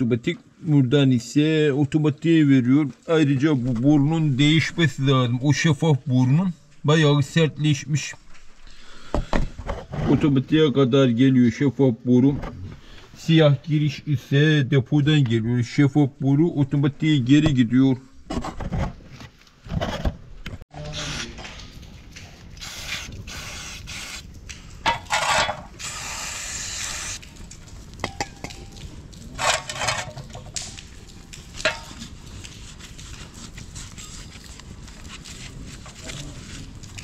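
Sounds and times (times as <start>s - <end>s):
scraping and rubbing by hand: 9.5s - 10.6s, 24.9s - 25.8s, 29.4s - 30.6s, 31.6s - 37.0s.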